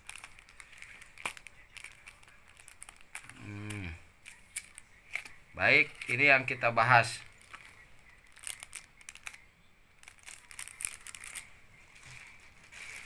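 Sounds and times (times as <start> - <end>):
plastic sleeve crinkling: 0.0 - 13.0
paper banknote rustling: 10.0 - 13.0.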